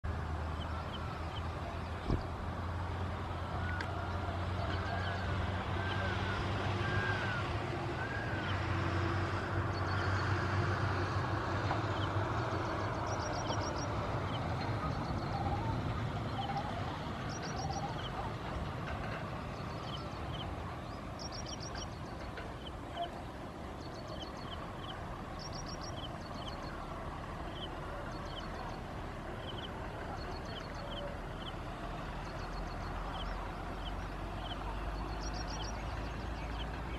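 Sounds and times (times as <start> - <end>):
vehicle engine drone: 0.0 - 36.9
small birds chirping: 11.9 - 36.9.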